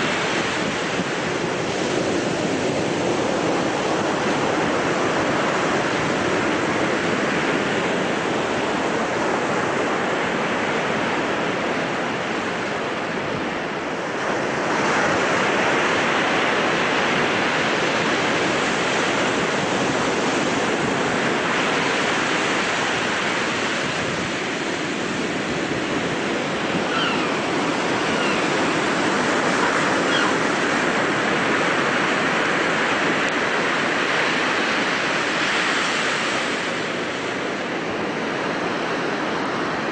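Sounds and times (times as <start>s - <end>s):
surf breaking over shallows: 14.0s - 39.9s.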